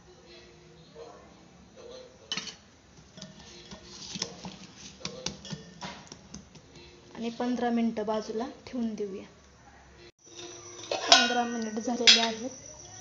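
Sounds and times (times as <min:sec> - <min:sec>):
metal bowl clicks and knocks: 0:02.3 - 0:06.7, 0:10.8 - 0:12.5
hand kneading dough in bowl: 0:03.2 - 0:06.6.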